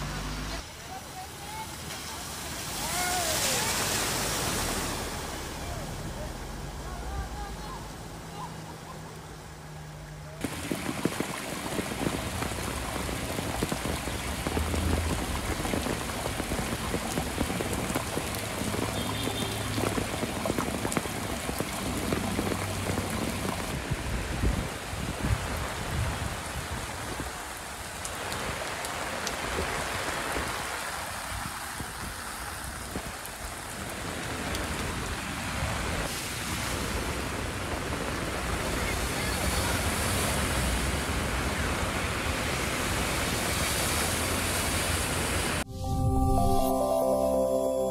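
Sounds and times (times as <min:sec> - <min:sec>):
heavy rain on pavement: 0:00.0 - 0:09.7, 0:10.4 - 0:45.7
running water: 0:00.0 - 0:35.1
water pouring from downspout: 0:10.4 - 0:26.7.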